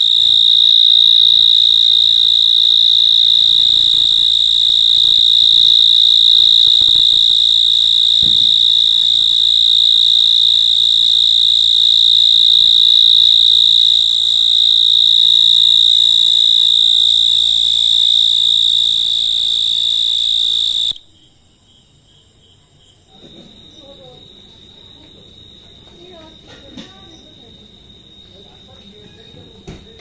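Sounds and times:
mole cricket buzzing: 0.0s - 22.3s.

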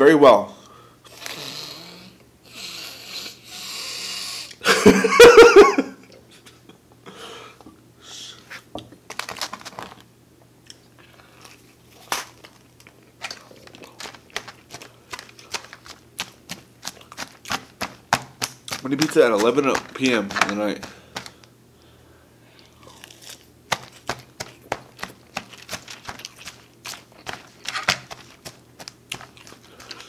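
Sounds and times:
crunchy chewing: 10.6s - 21.5s, 22.5s - 30.0s
plastic fork in plastic bowl: 13.2s - 21.4s, 23.7s - 30.0s.

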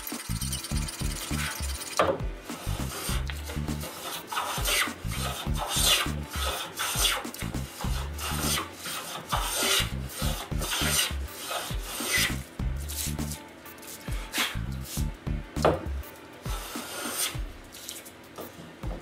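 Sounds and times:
hand plane shaving wood: 0.0s - 13.4s, 16.5s - 17.4s.

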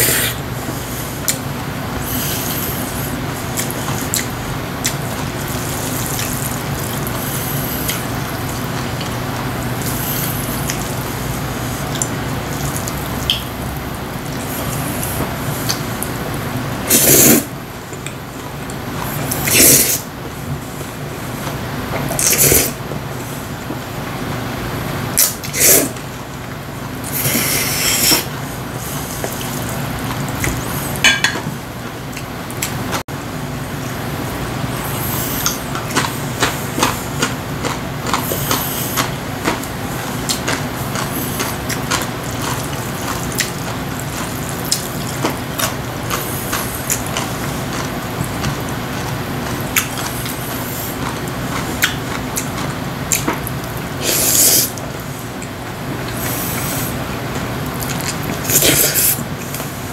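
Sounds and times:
steady low hum: 0.0s - 59.9s
chewing: 2.2s - 13.5s, 28.9s - 31.0s, 34.9s - 59.7s
noodles slurped: 16.9s - 17.5s, 19.0s - 20.1s, 22.2s - 22.8s, 25.2s - 26.0s, 54.0s - 55.1s, 57.8s - 59.7s.

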